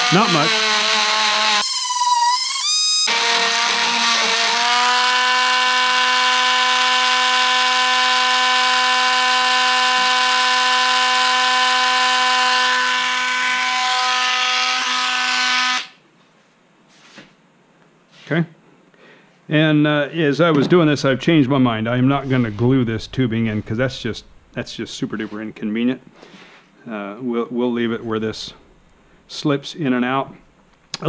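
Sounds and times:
rotary tool high whine: 0.0s - 14.4s.

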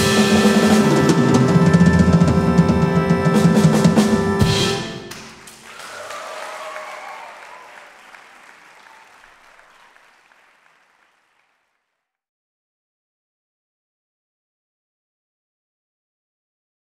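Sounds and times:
audience applause: 5.1s - 12.0s.

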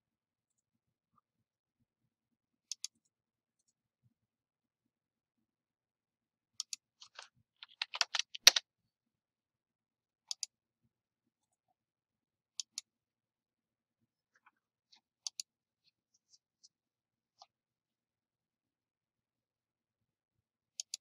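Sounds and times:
computer mouse clicking: 2.7s - 3.0s, 6.6s - 8.6s, 10.3s - 10.5s, 15.2s - 15.5s, 20.8s - 21.0s
keyboard typing: 7.0s - 8.6s.

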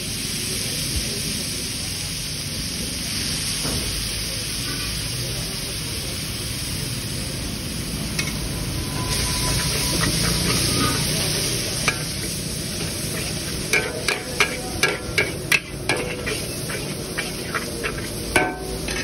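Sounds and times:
noodles sizzling in a wok: 0.0s - 19.0s
metal spatula scraping wok: 8.0s - 19.0s
spatula clanking on wok: 8.1s - 19.0s.

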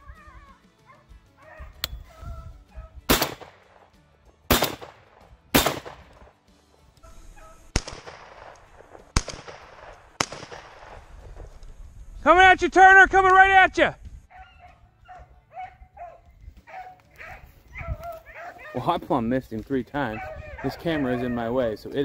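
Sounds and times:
shotgun firing: 3.1s - 3.8s, 4.5s - 6.3s, 7.7s - 11.5s
dogs barking faintly: 14.3s - 19.2s, 19.9s - 22.0s.

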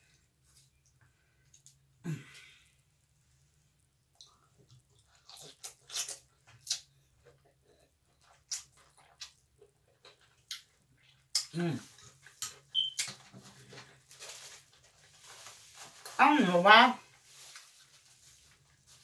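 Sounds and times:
slurping and chewing noodles: 4.2s - 13.0s.

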